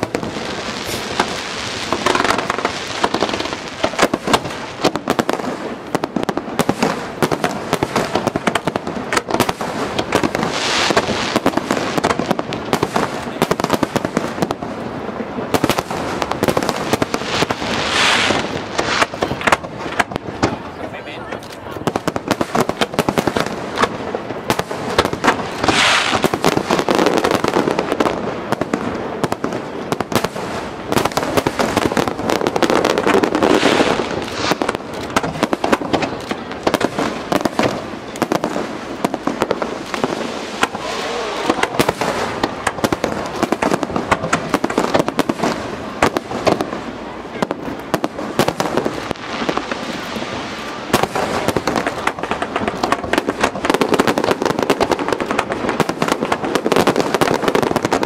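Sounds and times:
firework shells bursting: 21.5s - 58.0s.

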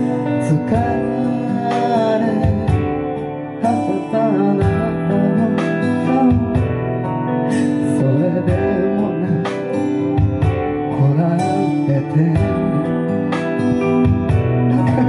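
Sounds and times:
man singing into microphone: 0.0s - 9.8s, 10.8s - 13.4s, 14.6s - 15.0s
guitar-like accompaniment: 0.0s - 15.0s.

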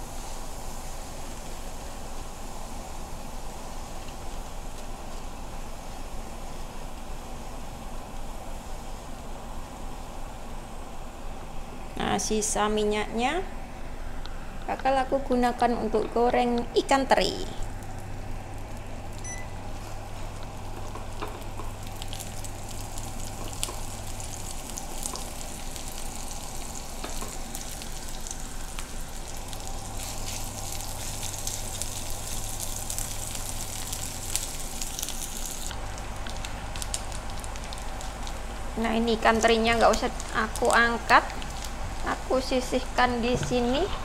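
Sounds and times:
fish sizzling in hot oil: 0.0s - 7.7s, 20.2s - 42.7s.

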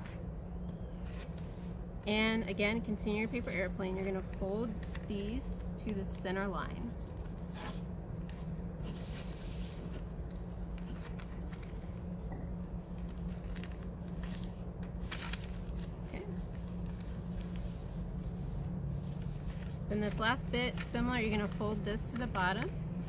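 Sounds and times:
steady low hum: 0.0s - 23.0s
newspaper rustling and creasing: 3.4s - 5.4s, 7.0s - 12.2s, 12.8s - 22.7s.

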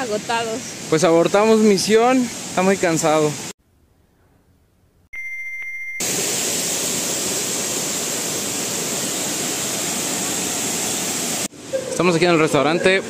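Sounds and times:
high electronic beep: 5.2s - 6.0s
waterfall rushing: 6.0s - 12.7s.

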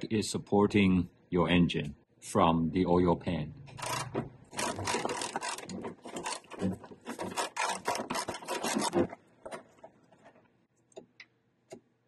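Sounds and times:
ratchet clicking rapidly: 3.8s - 6.6s, 7.3s - 8.9s.

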